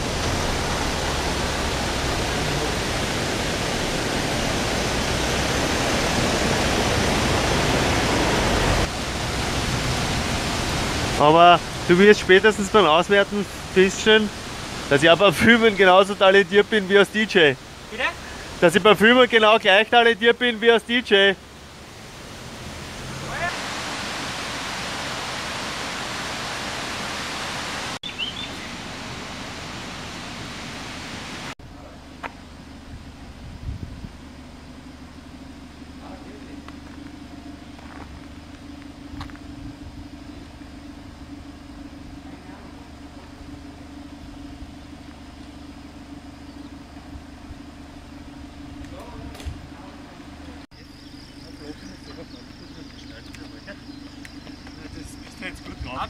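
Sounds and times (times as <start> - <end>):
steady rushing noise: 0.0 - 19.9.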